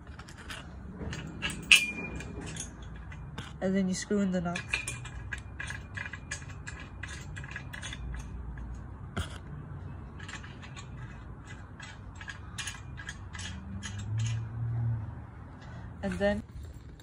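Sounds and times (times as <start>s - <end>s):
metal nut clicking on bolt: 4.5s - 9.4s, 10.2s - 14.6s.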